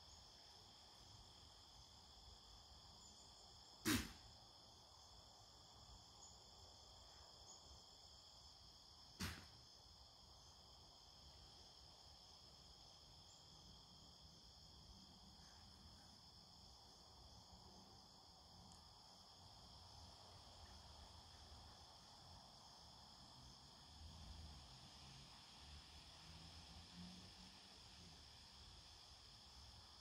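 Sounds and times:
insect chorus: 0.0s - 30.0s.

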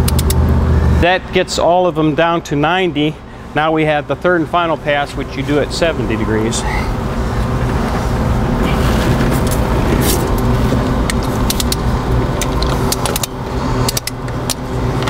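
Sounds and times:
ratchet clicks: 0.0s - 0.4s, 12.4s - 14.6s
steady low rumble: 0.0s - 15.0s.

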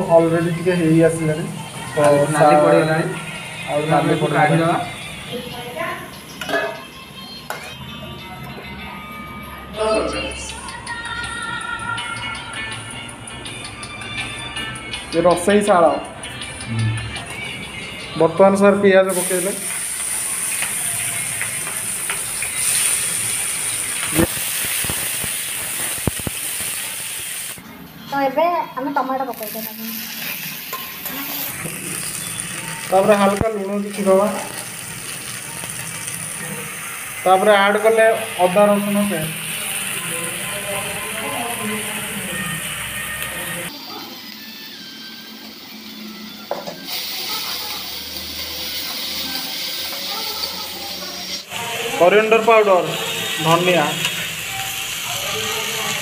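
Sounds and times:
onions sizzling in oil: 0.0s - 6.6s, 18.3s - 56.0s.

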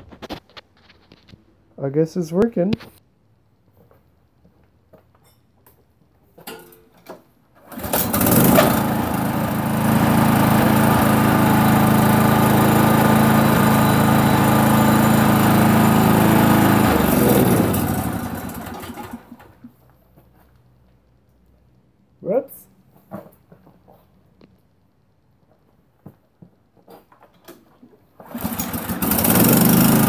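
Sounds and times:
lawn-mower engine running: 7.6s - 19.6s, 28.2s - 30.0s.

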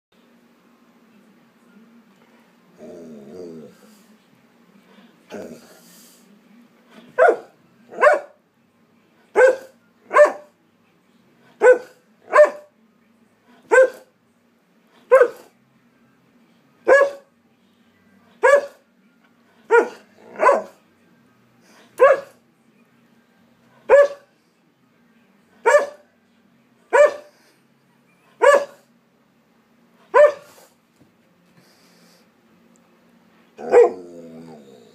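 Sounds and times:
dog barking: 7.2s - 8.4s, 9.3s - 10.5s, 11.6s - 12.7s, 13.7s - 14.1s, 15.1s - 15.5s, 16.9s - 17.3s, 18.4s - 18.8s, 19.7s - 20.8s, 22.0s - 22.4s, 23.9s - 24.3s, 25.6s - 26.0s, 26.9s - 27.3s, 28.4s - 28.8s, 30.1s - 30.6s, 33.6s - 34.0s.

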